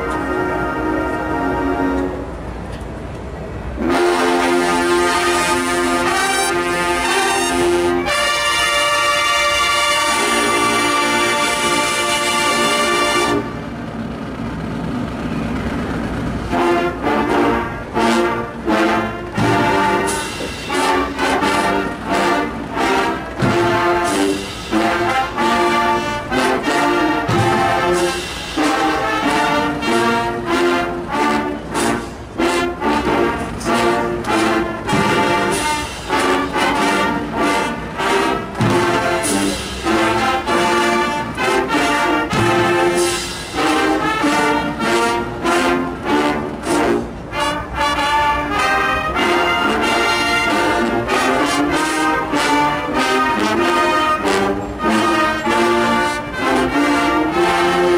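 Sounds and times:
marching band brass chords: 0.0 - 2.8, 3.4 - 57.9
marching snare and bass drums: 18.7 - 47.1.

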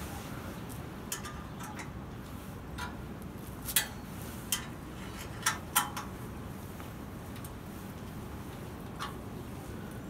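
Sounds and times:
low background noise: 0.0 - 10.0
metal clicks of exhaust tip fitting: 1.1 - 2.0, 2.8 - 3.0, 3.7 - 6.1.

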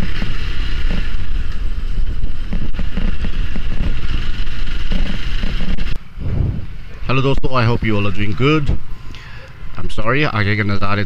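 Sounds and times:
motorcycle engine and wind rumble: 0.0 - 11.0.

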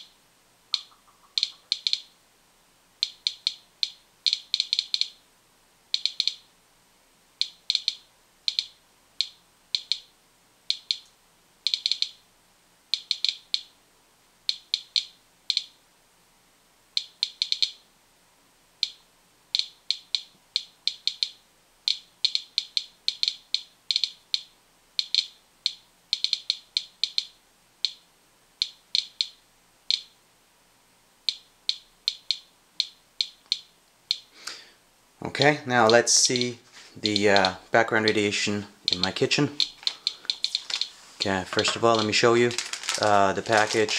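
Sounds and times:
geiger counter clicking: 0.7 - 2.1, 3.0 - 5.2, 5.9 - 6.5, 7.4 - 10.1, 10.7 - 12.2, 12.9 - 13.8, 14.5 - 15.8, 16.9 - 17.8, 18.8 - 30.2, 31.2 - 34.3, 35.8 - 43.9.

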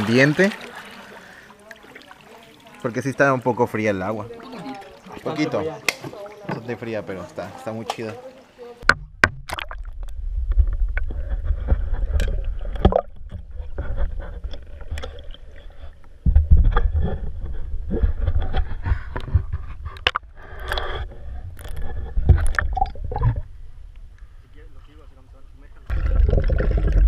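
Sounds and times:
water splashing around swimmer: 0.0 - 6.5
microphone handling rumble: 8.8 - 15.0, 16.2 - 20.4.

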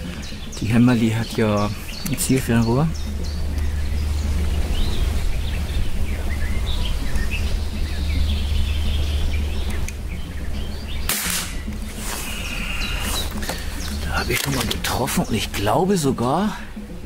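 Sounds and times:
low rumble: 0.0 - 15.4
birds chirping: 0.0 - 17.0
air rifle firing: 11.1 - 11.6.

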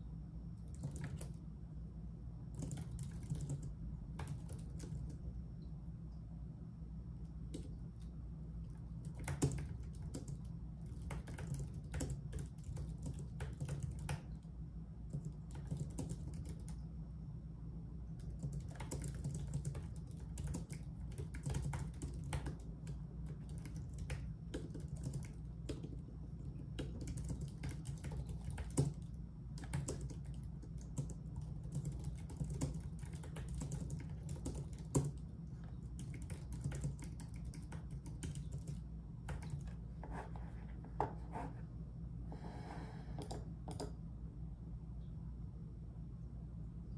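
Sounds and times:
steady low hum: 0.0 - 46.9
keyboard typing clicks: 0.6 - 1.4, 2.6 - 5.2, 9.0 - 14.4, 15.1 - 16.8, 18.2 - 39.8, 43.2 - 44.0.

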